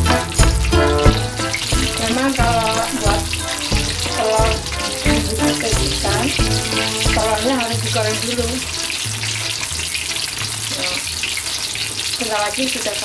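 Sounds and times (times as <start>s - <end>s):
music with bass beat: 0.0s - 7.6s
eggs sizzling in hot oil: 0.0s - 13.0s.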